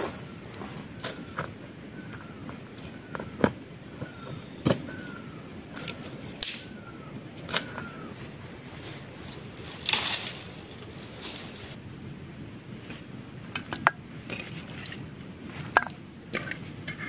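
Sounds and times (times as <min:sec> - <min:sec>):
rustling through dry bushes: 0:00.0 - 0:11.8.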